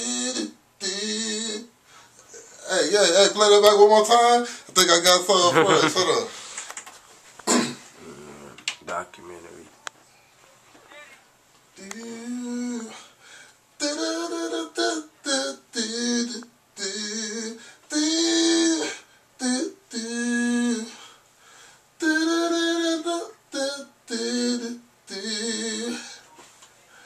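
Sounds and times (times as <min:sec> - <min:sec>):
man singing unaccompanied: 0:00.0 - 0:06.4, 0:11.7 - 0:13.2, 0:13.8 - 0:21.1, 0:22.0 - 0:26.3.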